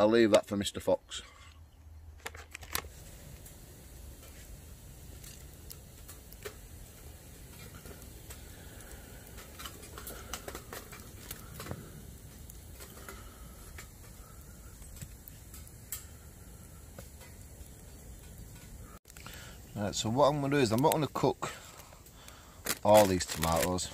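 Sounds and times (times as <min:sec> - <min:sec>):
wood fire crackling: 0:00.0 - 0:23.9
sharp pops and clicks: 0:04.2 - 0:19.8, 0:20.5 - 0:23.8.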